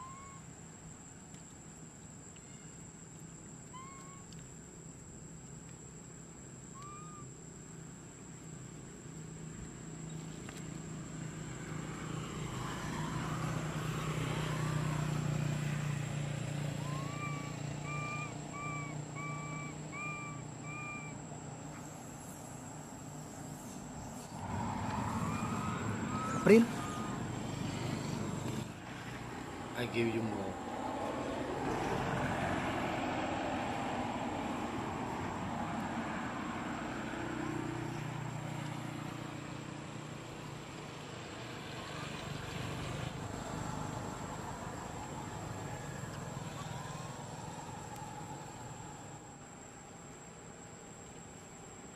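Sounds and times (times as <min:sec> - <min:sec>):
background hiss: 0:00.0 - 0:51.9
short clear calls: 0:03.7 - 0:04.4, 0:06.7 - 0:07.3, 0:16.7 - 0:22.5, 0:23.7 - 0:28.7
low engine hum: 0:07.7 - 0:49.6.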